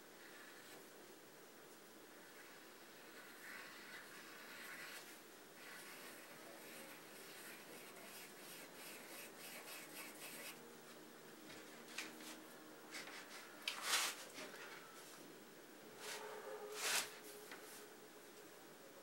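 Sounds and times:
pencil scratching on paper: 0:02.3 - 0:10.6, 0:16.8 - 0:17.8
hand brushing across paper: 0:11.7 - 0:14.5, 0:16.0 - 0:17.9.

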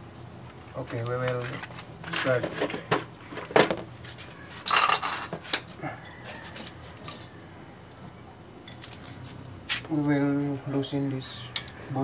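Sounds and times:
tools clicking and clinking: 0:07.8 - 0:09.3.

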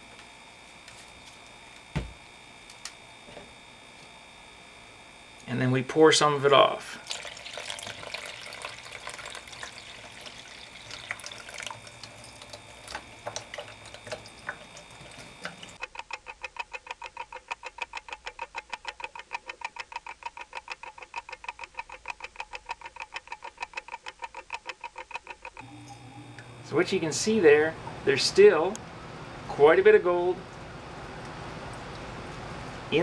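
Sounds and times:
liquid trickling and splashing: 0:07.0 - 0:15.8
rapid clock ticking: 0:15.8 - 0:25.6.

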